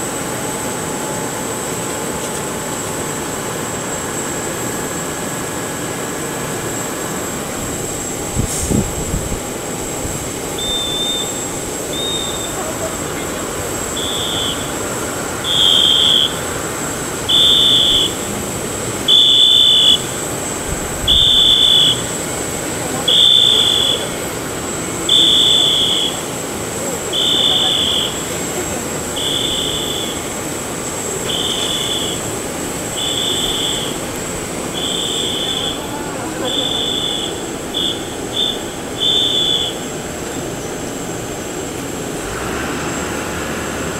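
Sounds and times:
jet engines running: 0.0 - 43.9
high-pitched vehicle warning beeps: 5.9 - 40.4.

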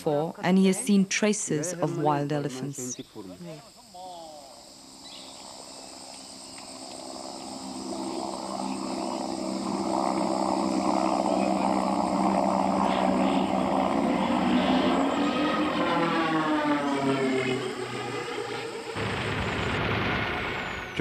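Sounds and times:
insects buzzing: 0.1 - 21.0
propeller aircraft engine droning: 4.0 - 21.0.

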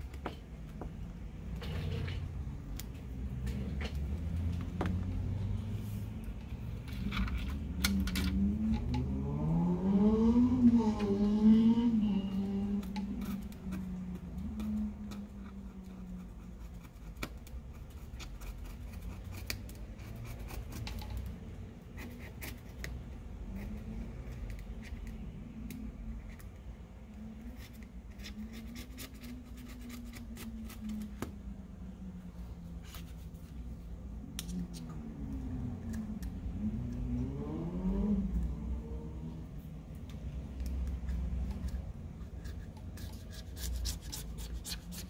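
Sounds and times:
low drifting hum: 0.0 - 16.2, 30.4 - 43.2.

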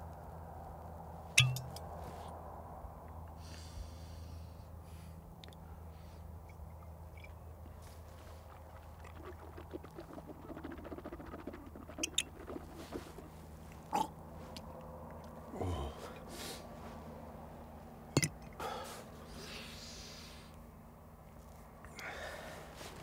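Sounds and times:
bottle clinking on stony ground: 1.4 - 1.8, 18.2 - 18.5
glass bottle handling: 1.4 - 1.8, 18.2 - 18.4.

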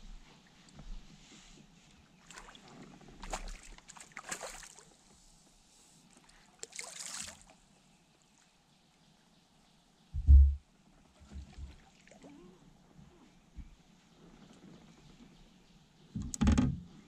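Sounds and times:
water splashing at boat side: 2.2 - 4.9, 6.6 - 7.6
loud low thump: 10.2 - 10.6.

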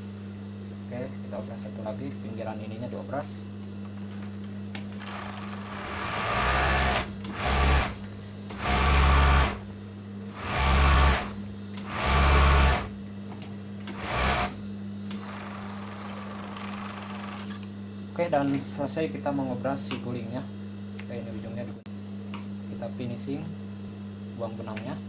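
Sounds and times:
steady low hum: 0.0 - 25.0
overlock machine stitching: 5.0 - 8.0, 8.6 - 9.6, 10.4 - 12.9, 13.9 - 14.6, 15.2 - 17.5.

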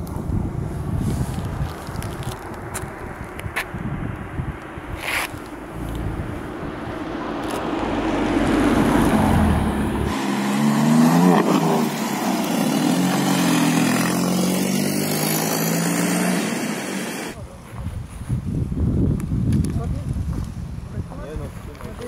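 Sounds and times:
car passing by: 5.0 - 17.4
car engine accelerating: 5.6 - 17.4.

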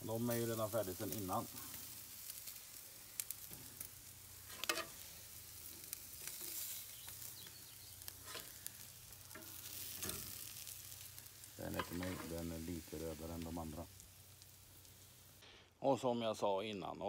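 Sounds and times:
steaks sizzling on a grill: 0.0 - 15.6
metal tongs clicking on grate: 4.5 - 5.0, 9.3 - 10.5.

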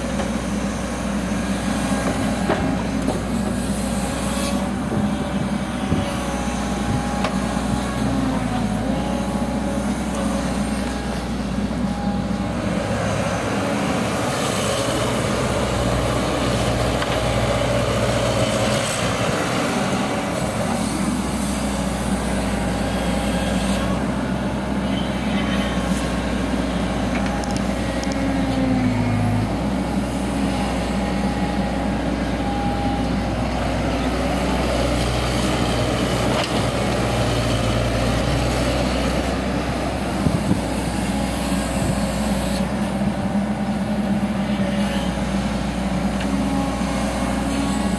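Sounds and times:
excavator diesel engine running: 0.0 - 47.9
hydraulic whine: 40.2 - 47.9.

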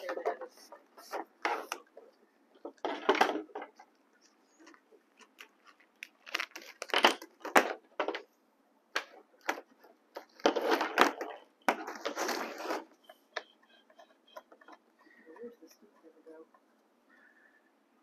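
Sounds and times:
plastic hose crackling and scraping: 0.0 - 8.3, 9.0 - 16.7.

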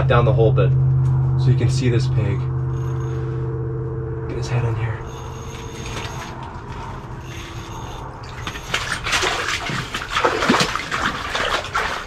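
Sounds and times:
fish thrashing and splashing: 7.4 - 12.0.

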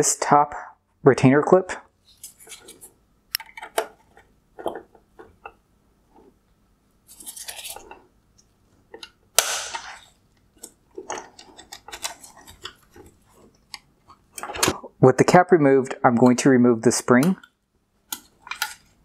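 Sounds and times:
plastic clicks: 17.2 - 19.0.

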